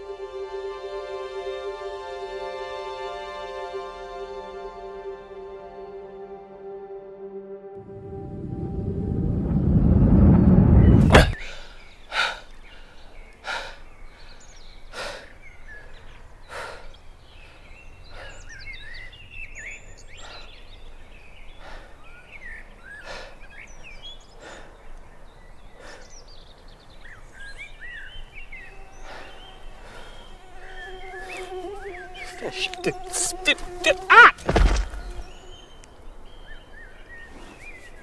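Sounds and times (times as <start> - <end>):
loud music swell: 0.0 - 11.3, 28.2 - 33.8
birds chirping: 10.6 - 38.0.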